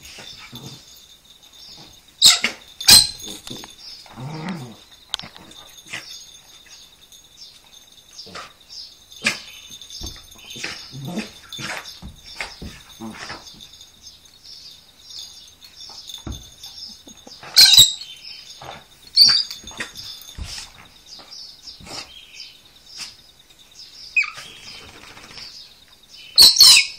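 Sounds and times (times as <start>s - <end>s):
dogs thumping and scuffling: 0.0s - 22.3s
birds chirping: 0.0s - 26.9s
dog high-pitched cries: 1.8s - 4.8s, 16.2s - 20.7s, 24.2s - 24.5s, 26.4s - 26.9s.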